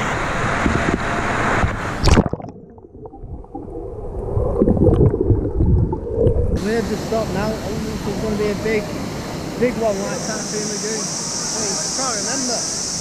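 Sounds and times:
water rushing and splashing: 0:00.0 - 0:13.0
loud splash: 0:01.9 - 0:07.4.

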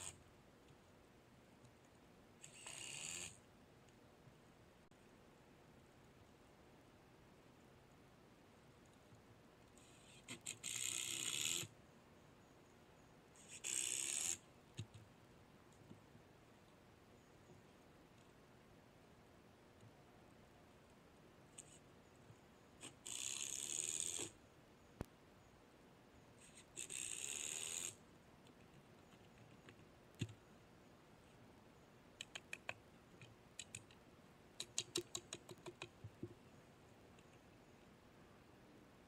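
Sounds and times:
drill driving screws into wood: 0:02.4 - 0:03.3, 0:09.9 - 0:11.7.

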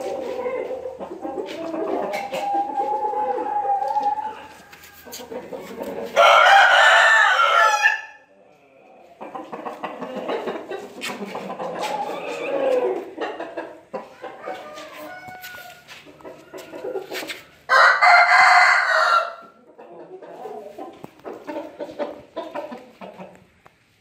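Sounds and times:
chicken clucking: 0:00.0 - 0:24.0
rooster crowing: 0:06.2 - 0:08.2, 0:14.2 - 0:16.0, 0:17.7 - 0:19.6.

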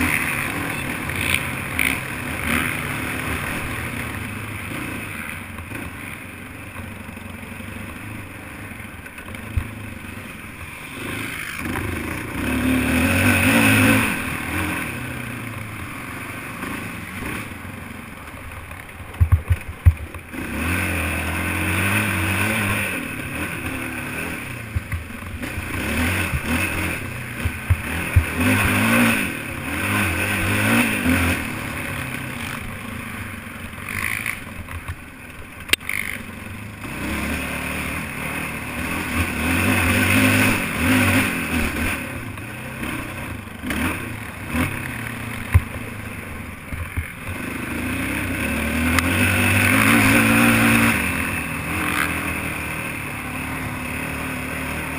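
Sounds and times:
quad engine revving: 0:00.0 - 0:06.2, 0:07.6 - 0:17.9, 0:19.1 - 0:35.0, 0:35.6 - 0:54.9
sharp knocks and clatter: 0:18.6 - 0:20.2, 0:24.7 - 0:25.7, 0:27.4 - 0:28.8.

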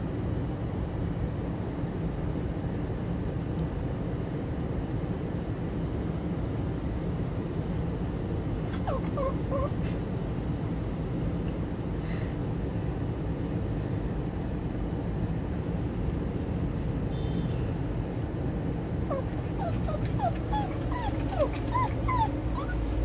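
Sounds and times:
dog whimpering: 0:08.6 - 0:10.2, 0:19.0 - 0:23.0.

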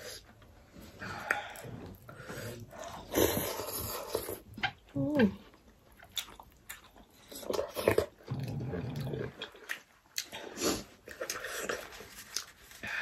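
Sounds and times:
wet chewing and lip-smacking: 0:03.3 - 0:12.6.

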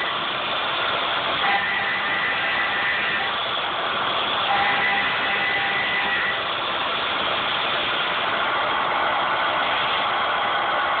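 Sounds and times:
faint machine whine: 0:00.0 - 0:08.0
milling machine cutting metal: 0:00.0 - 0:10.7.

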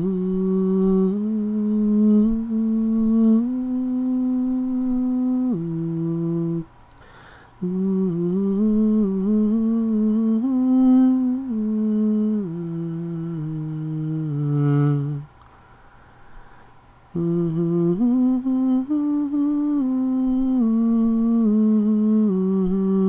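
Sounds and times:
person humming a slow tune: 0:00.0 - 0:15.4, 0:17.1 - 0:23.0.

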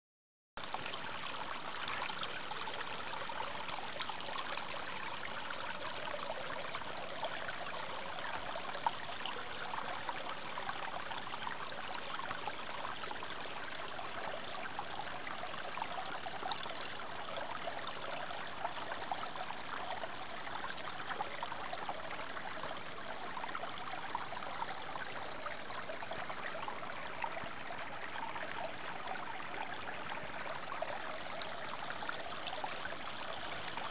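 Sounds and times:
brook running over rocks: 0:00.6 - 0:33.9.

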